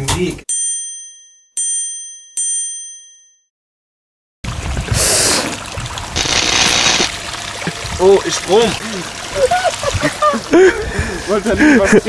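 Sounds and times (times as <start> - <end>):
bell-like ding: 0.6 - 3.5
water running and splashing: 4.5 - 12.0.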